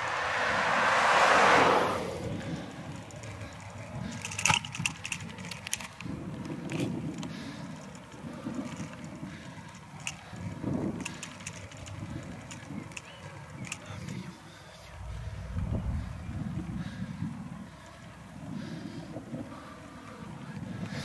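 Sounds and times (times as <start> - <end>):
bicycle rumbling and rattling: 0.0 - 21.0.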